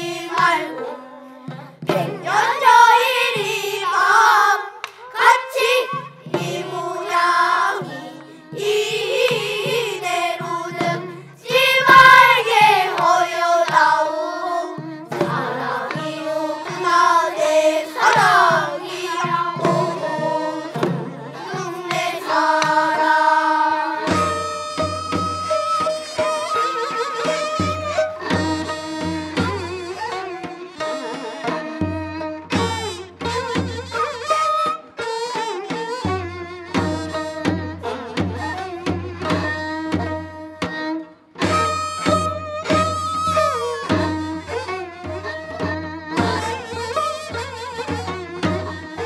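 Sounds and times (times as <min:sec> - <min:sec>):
children's chorus singing: 0:00.0 - 0:25.2.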